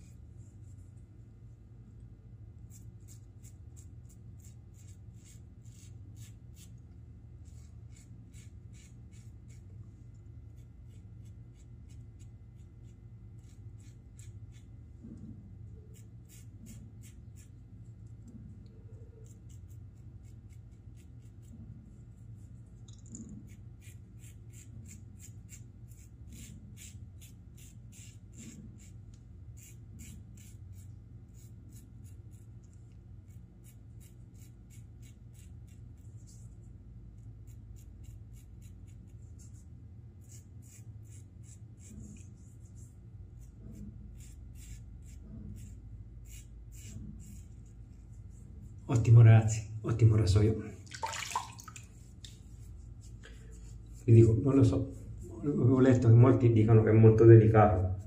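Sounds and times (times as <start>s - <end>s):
steady low hum: 0.0s - 58.0s
razor scraping stubble: 2.7s - 6.8s, 10.5s - 17.6s, 23.2s - 32.6s, 33.2s - 36.4s, 37.3s - 39.6s, 40.2s - 48.8s.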